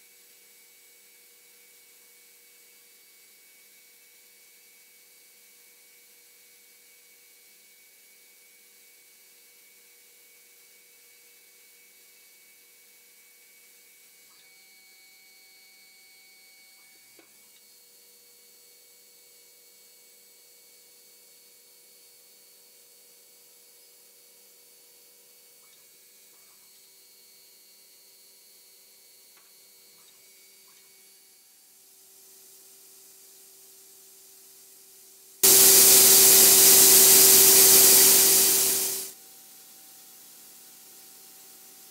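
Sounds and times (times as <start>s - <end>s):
compressed air hissing: 35.4s - 39.1s
lathe drives humming and whining: 35.4s - 39.1s.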